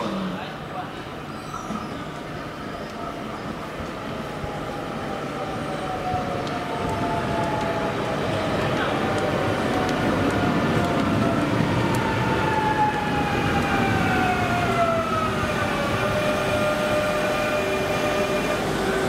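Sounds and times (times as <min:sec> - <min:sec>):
wheels rumbling on rails: 0:01.8 - 0:19.0
train traction motors whining: 0:14.2 - 0:19.0.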